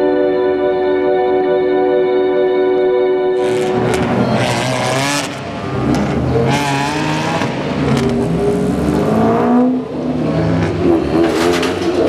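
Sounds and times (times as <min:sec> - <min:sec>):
race car engines accelerating: 0:03.4 - 0:12.0.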